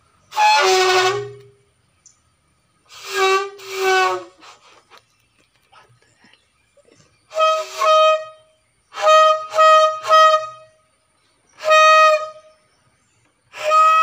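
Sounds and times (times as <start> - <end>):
balloon horn toots: 0.3 - 1.5, 2.9 - 4.6, 9.0 - 10.7, 11.6 - 12.4, 13.6 - 14.0.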